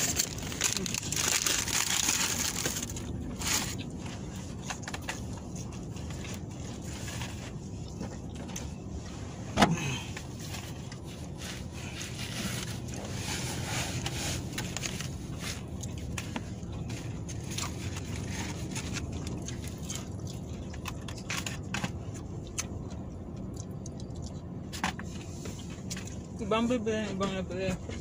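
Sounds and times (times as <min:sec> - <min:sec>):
paper and cardboard rustling: 0:00.0 - 0:07.6, 0:10.3 - 0:19.8
steady low hum: 0:00.0 - 0:28.0.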